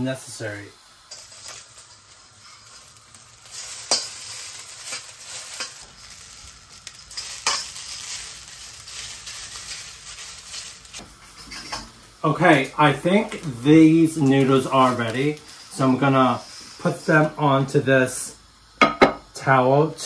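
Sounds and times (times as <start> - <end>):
noodles sizzling in hot oil: 0.0 - 20.0
metal spatula scraping wok: 1.1 - 12.0.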